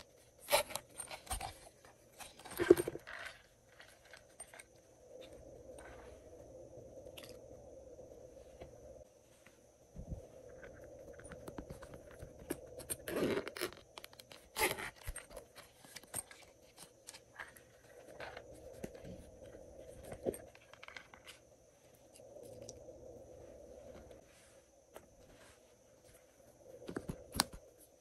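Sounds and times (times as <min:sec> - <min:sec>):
zippered case being handled: 0:00.0 - 0:04.7, 0:10.6 - 0:21.4.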